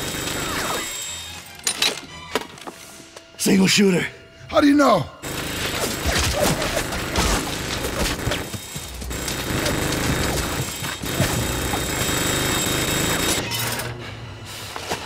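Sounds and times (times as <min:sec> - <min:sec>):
rapid machine gun fire: 0:00.0 - 0:00.8, 0:05.2 - 0:13.4.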